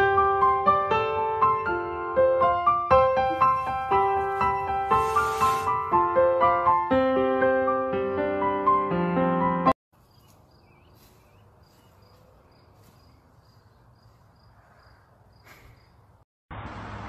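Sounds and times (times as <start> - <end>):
piano music: 0.0 - 9.8
cricket chirping: 10.0 - 16.2.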